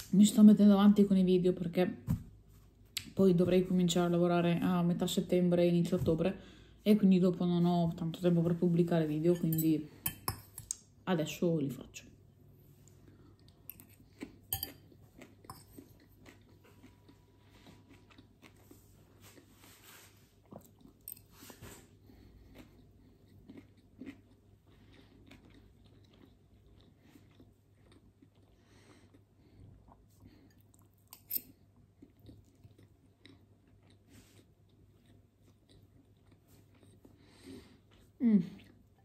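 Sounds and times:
person chewing food: 12.7 - 39.0
metal fork clicking on glass bowl: 14.5 - 14.8.

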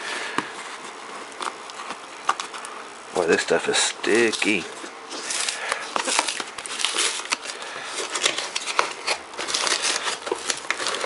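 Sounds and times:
packing tape and paper ripping: 1.2 - 11.0
cardboard box being torn open: 5.1 - 11.0.

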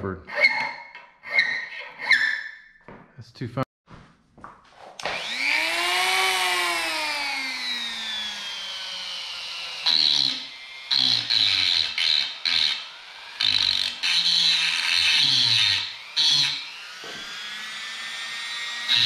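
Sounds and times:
bit grinding wood: 5.0 - 19.0
rotary tool motor whine: 5.0 - 19.0.

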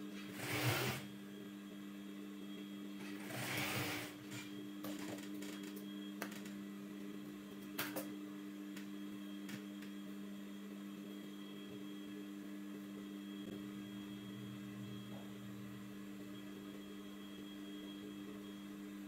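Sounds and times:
sewing machine motor humming: 0.2 - 1.1, 3.0 - 4.5.

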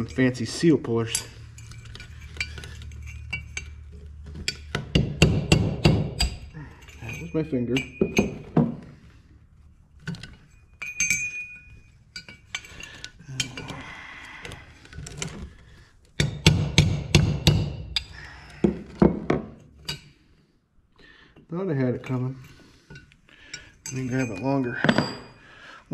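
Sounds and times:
metal tools clinking and knocking: 0.0 - 9.2, 9.8 - 16.5, 17.4 - 20.2, 21.8 - 25.7
short metallic ring: 10.1 - 12.7.

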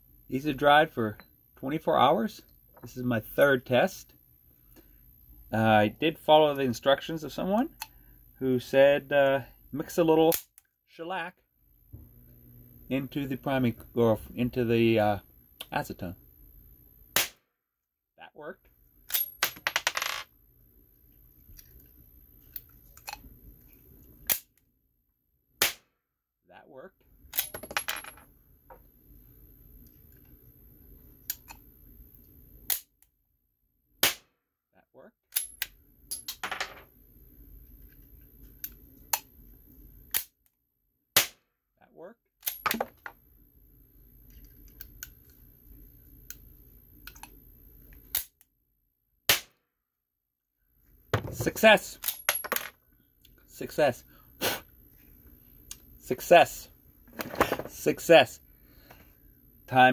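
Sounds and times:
primer firing with sharp pop: 17.2 - 17.4, 25.6 - 25.9, 34.0 - 34.3, 41.2 - 41.4, 49.3 - 49.6.

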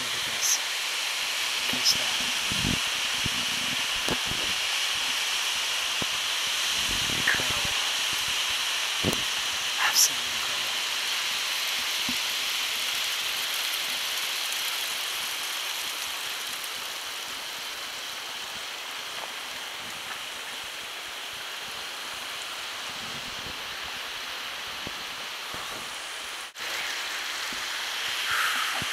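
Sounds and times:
waterfall rushing down rocks: 0.0 - 28.9.

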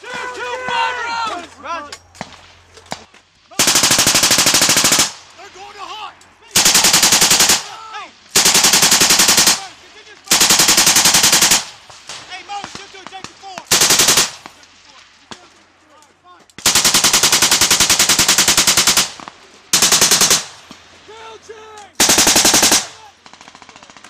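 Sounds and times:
machine gun bursts: 3.6 - 5.2, 6.6 - 7.7, 8.3 - 9.6, 10.3 - 11.7, 13.7 - 14.4, 16.6 - 20.5, 22.0 - 24.0.

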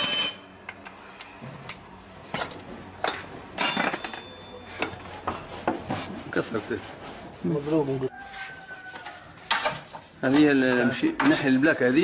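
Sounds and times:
metal tools clinking: 0.0 - 0.6, 2.4 - 4.9.

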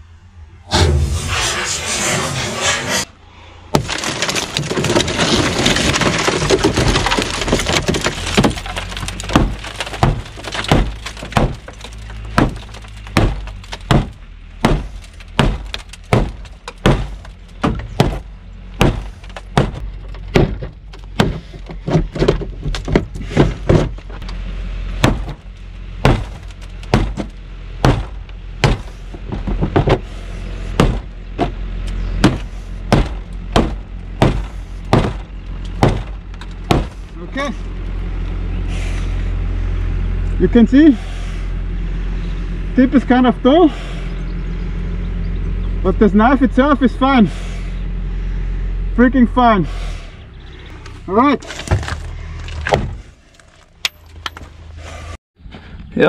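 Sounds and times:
broken glass crunching: 3.8 - 18.2, 51.4 - 54.5.

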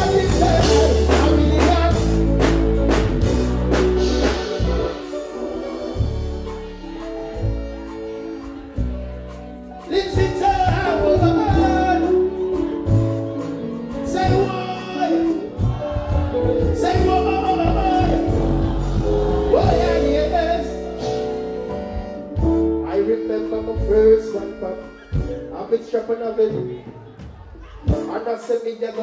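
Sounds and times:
man singing into a microphone: 0.0 - 2.5, 9.8 - 13.0, 14.0 - 18.6, 19.4 - 21.3, 22.8 - 27.0
reggae band with deep bass: 0.0 - 29.0.

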